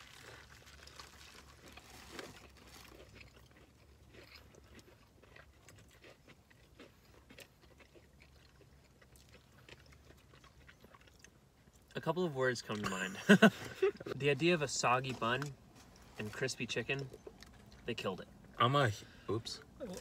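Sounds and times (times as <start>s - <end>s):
small crunches of breading: 0.0s - 11.9s
chewing crispy food: 0.0s - 18.6s, 19.4s - 20.0s.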